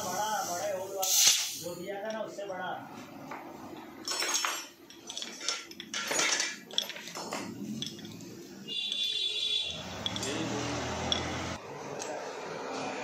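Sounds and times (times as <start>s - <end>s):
metallic clinks and knocks: 3.9s - 12.1s.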